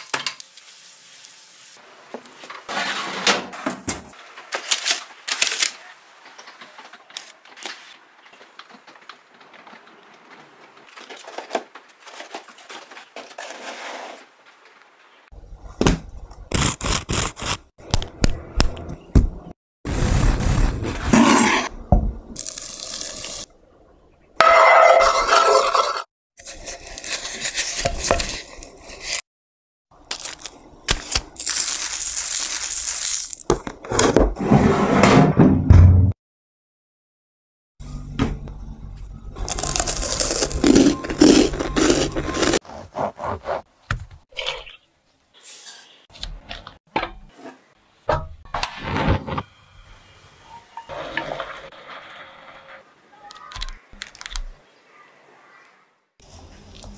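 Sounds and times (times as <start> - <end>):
kitchen noises: 24.4 - 29.2, 39.4 - 44.7
spoon stirring and scraping bowl: 24.5 - 29.2
crunching of crisp toast: 30.0 - 33.5, 39.4 - 42.6, 53.3 - 54.4
serrated knife sawing bread: 39.7 - 43.7.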